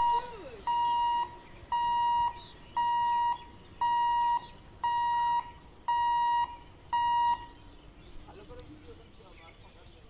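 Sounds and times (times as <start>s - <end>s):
level crossing buzzer beeping: 0.0s - 7.5s.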